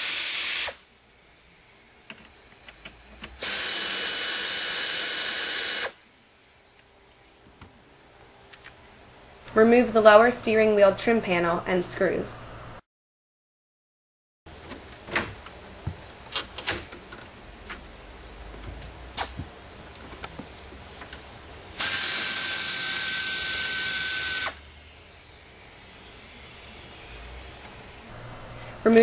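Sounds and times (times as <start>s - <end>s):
power screwdriver running: 3.4s - 6.0s, 21.8s - 24.6s.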